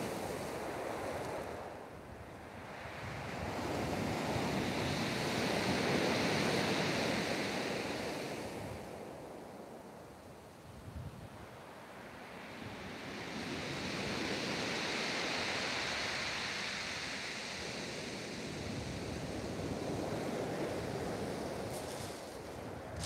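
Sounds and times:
wind on microphone: 17.7 - 23.0.

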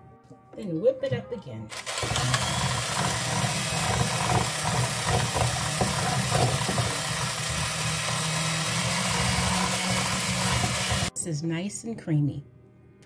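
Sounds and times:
electric hand mixer running: 1.7 - 11.1.

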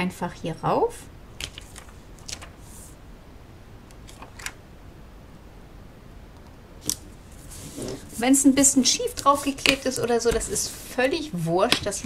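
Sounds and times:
low room hum: 0.0 - 12.0
paper rustling and tapping: 1.4 - 2.6, 7.6 - 12.0.

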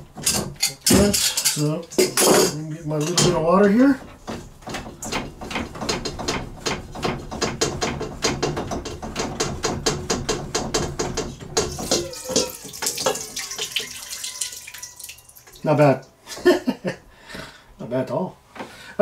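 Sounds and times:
water trickling: 11.7 - 16.2.

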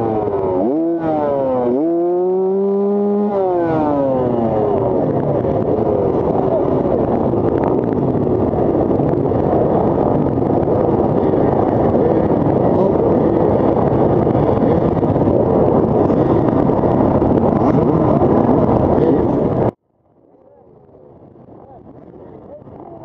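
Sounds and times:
engines revving: 0.0 - 19.8.

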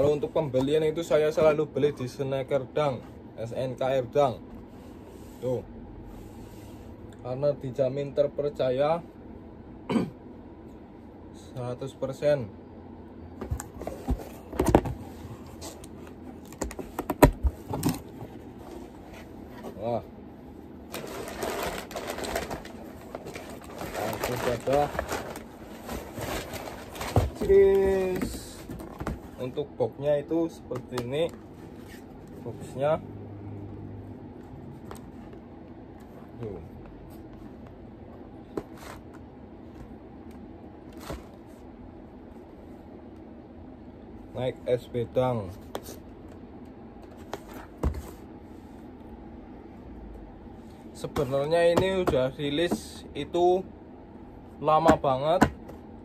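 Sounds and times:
cardboard box rustling and scraping: 20.9 - 29.5.

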